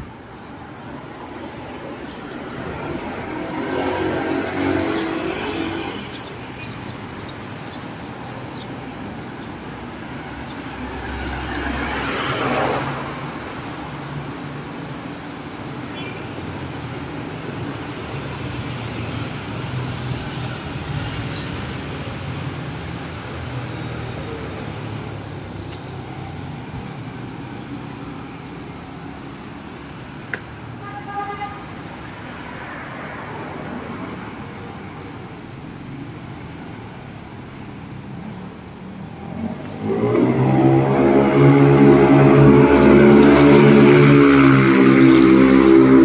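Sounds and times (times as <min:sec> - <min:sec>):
cars and motorcycles driving past: 0:00.0 - 0:46.0
vehicle passing close: 0:01.1 - 0:13.9, 0:35.5 - 0:46.0.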